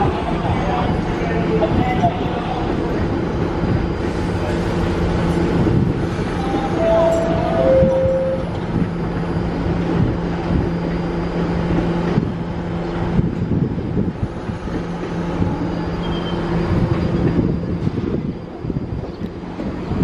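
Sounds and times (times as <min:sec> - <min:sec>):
train equipment humming: 0:00.0 - 0:20.0
two-tone door chime: 0:06.8 - 0:08.6.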